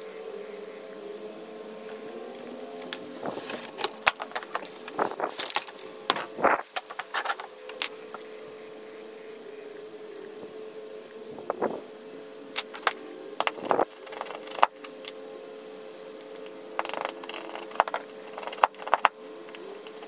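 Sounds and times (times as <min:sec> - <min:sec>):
steady low hum: 0:00.0 - 0:20.0
scraping on wood: 0:01.9 - 0:08.3, 0:16.8 - 0:20.0.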